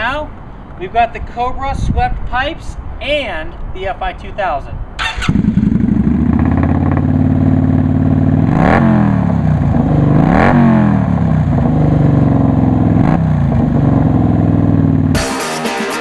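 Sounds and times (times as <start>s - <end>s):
motorcycle engine idling and revving: 5.0s - 15.2s.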